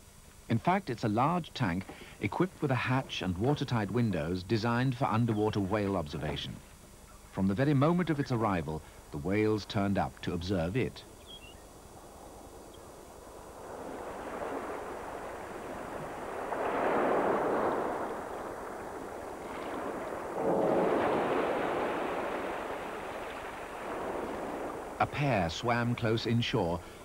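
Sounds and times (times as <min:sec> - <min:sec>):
sea waves washing: 0:12.0 - 0:27.0.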